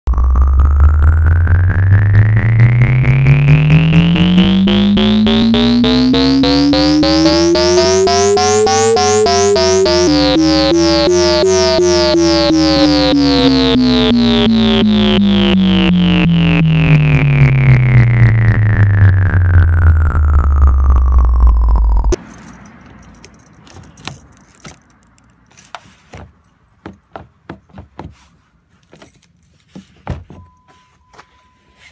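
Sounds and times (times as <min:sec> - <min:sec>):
synthesizer tones sweeping in pitch: 0:00.1 - 0:22.2
faint clicks and handling noises: 0:22.2 - 0:27.1.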